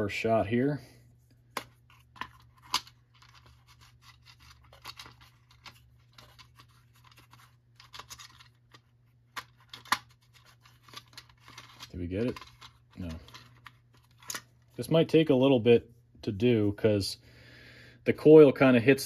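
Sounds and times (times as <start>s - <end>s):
plastic scraping on plastic: 1.6s - 14.5s.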